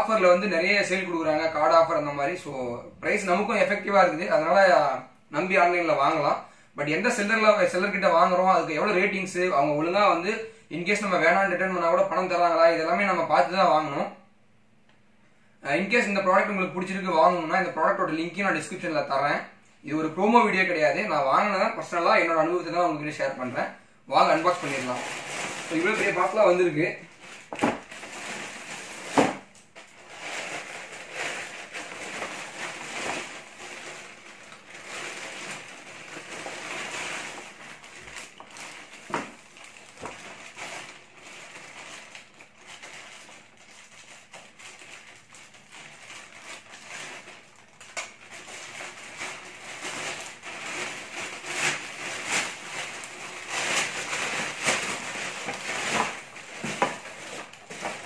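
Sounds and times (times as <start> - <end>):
plastic bag crinkling: 24.2 - 58.0
scissors cutting plastic: 46.6 - 58.0.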